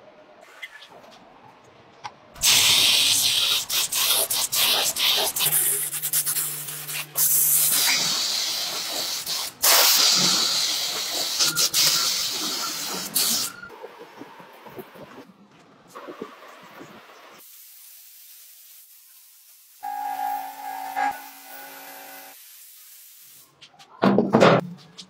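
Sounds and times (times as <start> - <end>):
spray gun hissing: 2.4 - 13.5, 17.4 - 23.5.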